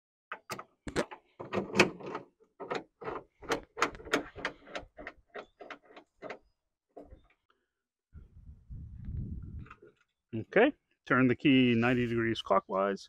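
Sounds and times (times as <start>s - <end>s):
tailgate lock clicking: 0.3s - 6.4s.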